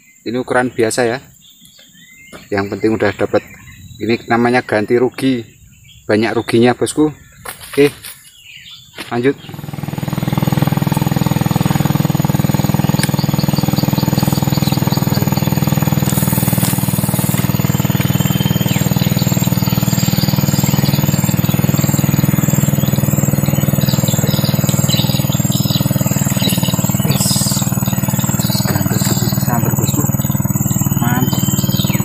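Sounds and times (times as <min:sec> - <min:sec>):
bird chirps: 0:00.0 - 0:32.0
low engine drone: 0:09.2 - 0:32.0.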